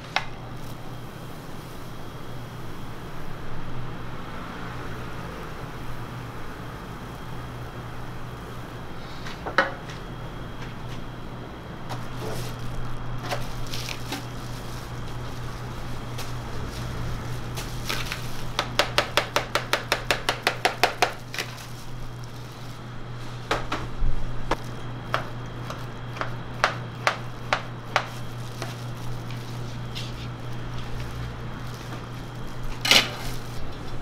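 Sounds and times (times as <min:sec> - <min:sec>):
steady low hum: 0:00.0 - 0:34.0.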